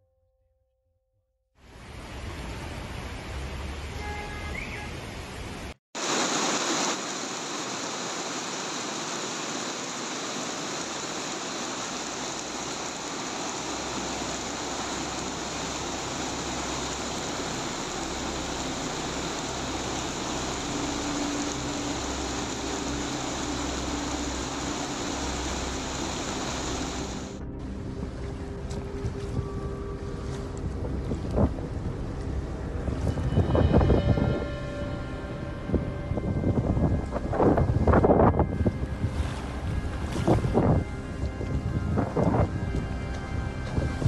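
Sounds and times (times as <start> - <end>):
steady rushing noise: 6.0 - 29.5.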